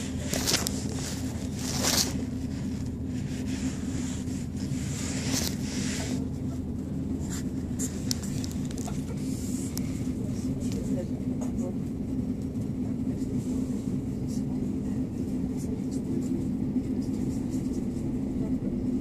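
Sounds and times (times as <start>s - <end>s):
train engine droning: 0.0s - 19.0s.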